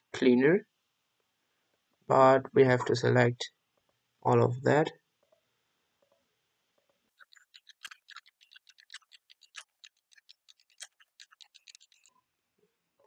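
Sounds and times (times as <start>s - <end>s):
computer mouse clicking: 7.2s - 12.1s.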